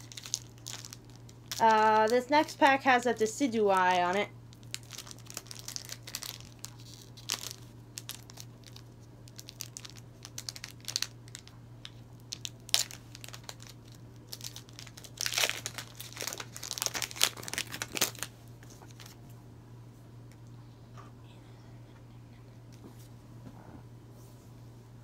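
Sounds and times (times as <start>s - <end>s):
foil wrapper crinkling: 0.0s - 19.2s.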